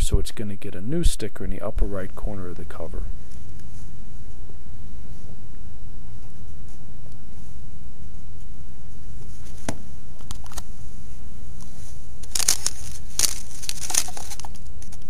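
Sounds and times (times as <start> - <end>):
steady low hum: 0.0 - 15.0
rustling: 6.1 - 15.0.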